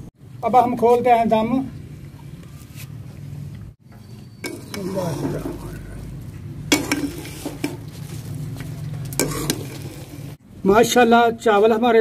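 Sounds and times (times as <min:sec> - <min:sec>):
metal spoon stirring rice in pot: 0:04.3 - 0:10.4
spoon knocking against metal pot: 0:06.7 - 0:07.8.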